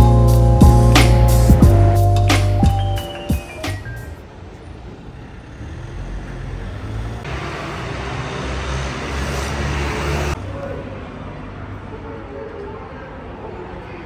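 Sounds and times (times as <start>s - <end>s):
street traffic rumble: 0.0s - 14.0s
motor scooter passing: 5.5s - 11.6s.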